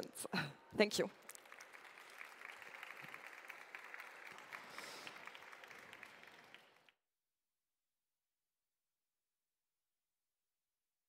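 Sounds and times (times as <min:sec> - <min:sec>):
audience applause: 0:01.1 - 0:07.0.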